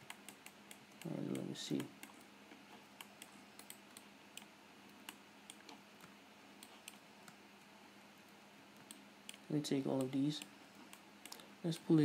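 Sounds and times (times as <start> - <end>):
mouse and keyboard clicks: 3.0 - 7.4.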